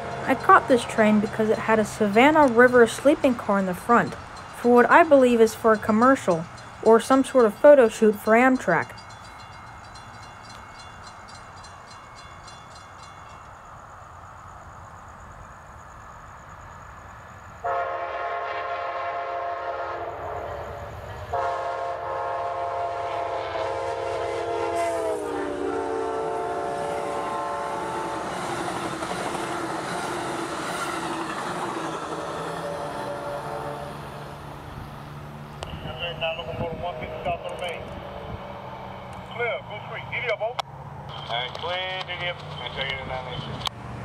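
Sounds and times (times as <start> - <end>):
crossing bell ringing: 0.0 - 14.0
train rumbling and clattering: 0.0 - 18.1, 18.8 - 44.0
train horn blasts: 17.6 - 28.4, 32.2 - 34.2.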